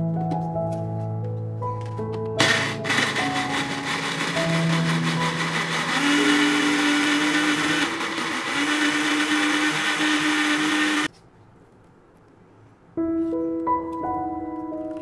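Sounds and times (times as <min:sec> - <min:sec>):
blender running: 0:02.4 - 0:11.1.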